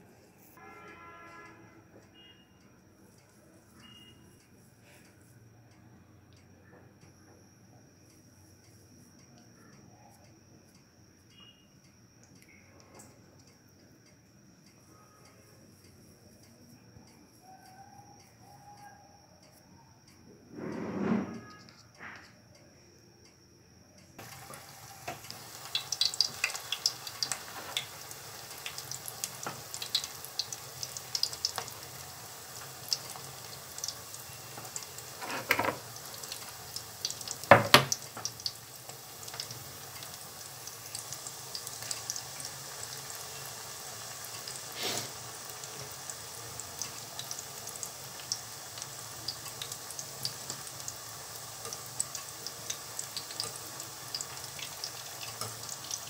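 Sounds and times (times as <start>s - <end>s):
dough frying in hot oil: 24.2s - 56.0s.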